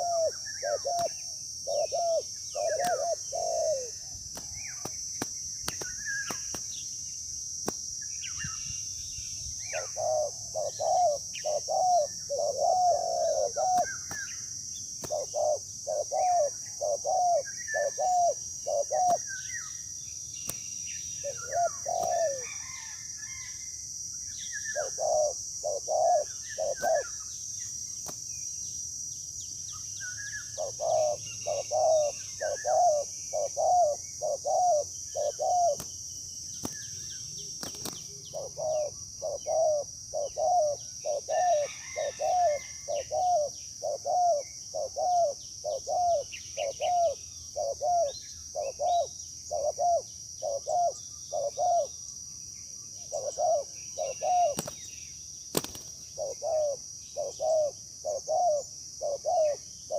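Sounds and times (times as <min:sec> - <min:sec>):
doves cooing: 0:00.0 - 0:04.8, 0:09.7 - 0:14.3, 0:15.0 - 0:19.3, 0:21.2 - 0:23.5, 0:24.7 - 0:27.2, 0:30.4 - 0:35.9, 0:37.6 - 0:51.9, 0:53.0 - 0:54.8, 0:55.5 - 0:59.9
small birds chirping: 0:00.0 - 0:22.9, 0:24.2 - 0:59.9
high insect drone: 0:00.0 - 0:59.9.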